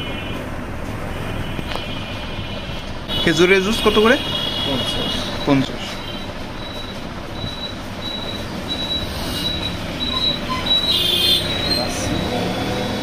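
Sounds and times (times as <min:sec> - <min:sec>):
street background noise: 0:00.0 - 0:13.0.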